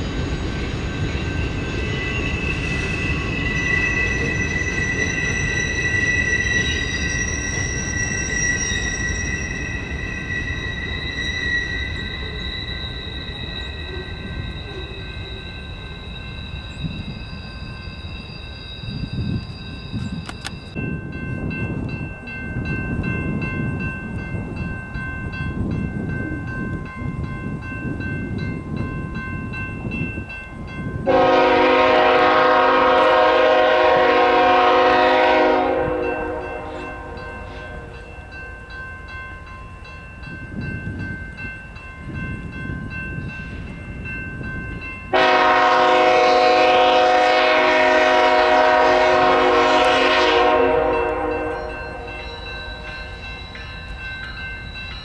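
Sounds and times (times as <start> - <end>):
low rumble of train: 0.0 - 55.0
locomotive air horn blasts: 31.0 - 37.9, 45.1 - 52.1.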